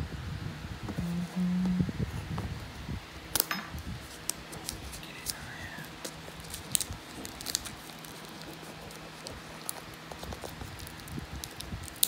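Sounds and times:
shrink wrap crackling: 0:03.3 - 0:12.0.

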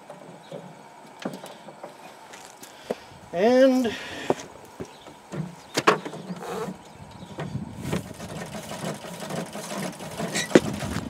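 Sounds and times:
treadle sewing machine whirring: 0:08.0 - 0:11.0.

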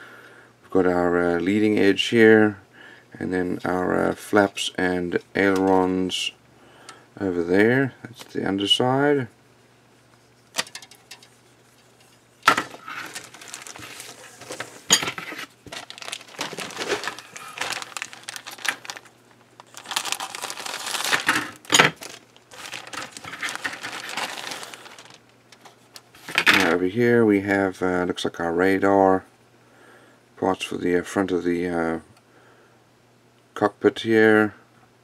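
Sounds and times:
plastic bag crinkling and rustling: 0:10.6 - 0:26.8.

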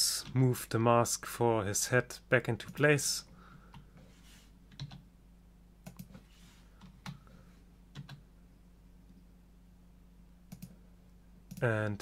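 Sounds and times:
steady low hum: 0:00.0 - 0:12.0
keyboard and mouse clicks: 0:04.7 - 0:05.0, 0:05.8 - 0:06.2, 0:07.9 - 0:08.2, 0:10.5 - 0:10.8.

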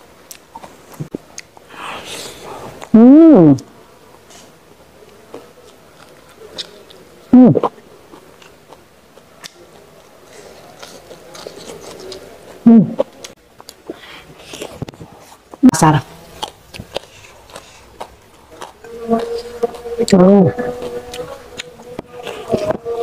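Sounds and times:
chewing and mouth clicks: 0:00.3 - 0:01.6, 0:05.1 - 0:07.0, 0:07.6 - 0:10.1, 0:10.7 - 0:15.0, 0:16.4 - 0:22.8
person humming: 0:01.8 - 0:03.7, 0:07.4 - 0:07.7, 0:12.7 - 0:13.0, 0:18.8 - 0:23.0.

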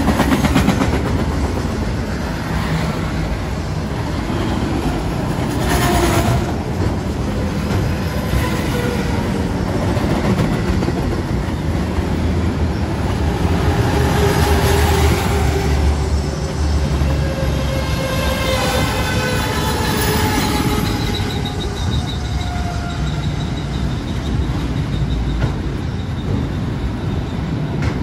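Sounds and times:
train cars rattling: 0:00.0 - 0:28.0
steel wheels running on rails: 0:19.1 - 0:28.0.

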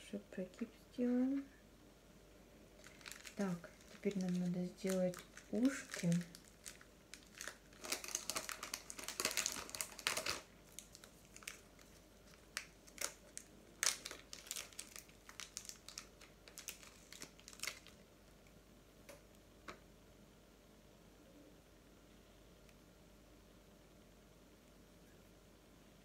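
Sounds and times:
plastic wrapping crinkling: 0:02.8 - 0:18.0.

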